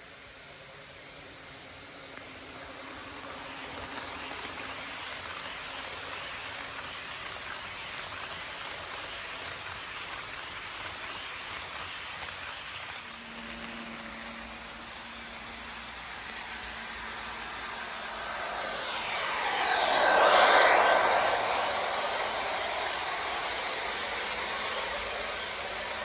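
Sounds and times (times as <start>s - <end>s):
model train wheels rumbling: 0.5s - 26.0s.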